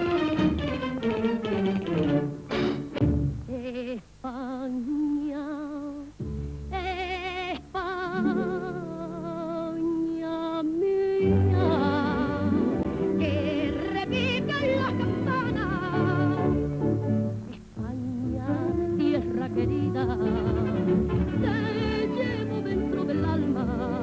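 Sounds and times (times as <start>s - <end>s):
instrumental accompaniment: 0.0s - 3.6s, 11.3s - 24.0s
woman singing with vibrato: 3.5s - 16.6s, 17.6s - 24.0s.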